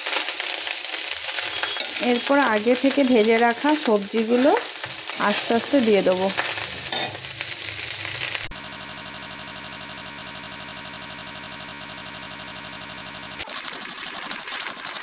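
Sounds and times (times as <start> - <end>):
rice sizzling in a pan: 0.0 - 8.8
fluttering electronic tone: 8.4 - 13.6.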